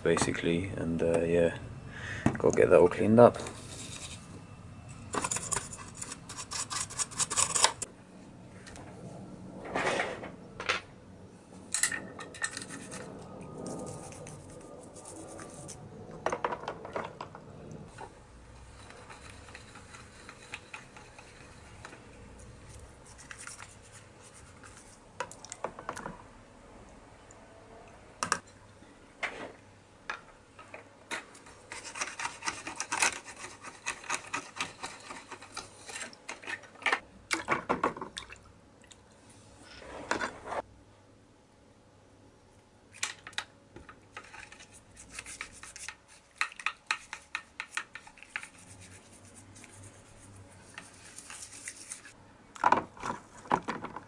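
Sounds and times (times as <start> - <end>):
brush scrubbing: 12.6 - 15.9, 18.7 - 25.0, 31.4 - 36.6, 44.3 - 52.2
splashing and rubbing in water: 44.5 - 52.2.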